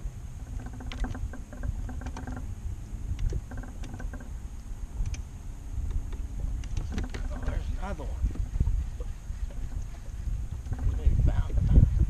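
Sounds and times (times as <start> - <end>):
wind rumble on microphone: 0.0 - 12.0
fishing reel gears whirring: 0.4 - 2.5
light clicks: 5.0 - 7.3.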